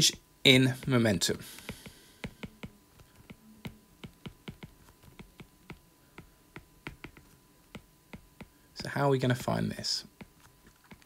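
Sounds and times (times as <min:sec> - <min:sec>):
stylus tapping on glass screen: 0:01.7 - 0:08.6.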